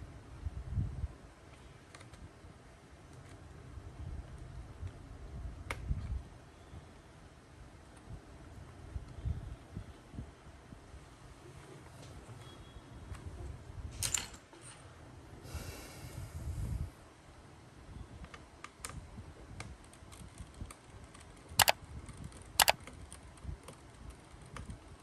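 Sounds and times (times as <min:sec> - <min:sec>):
fingers tapping laptop parts: 0:19.6 - 0:24.8
sharp clicks: 0:21.1 - 0:23.0.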